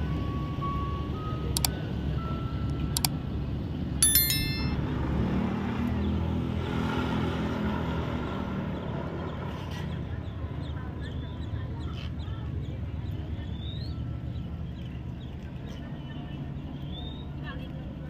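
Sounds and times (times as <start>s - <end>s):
bright bell-like ding: 4.0s - 4.9s.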